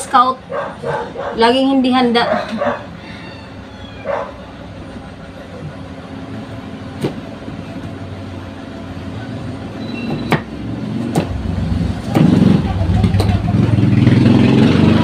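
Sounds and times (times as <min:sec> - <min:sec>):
engine low rumble: 0:00.0 - 0:15.0.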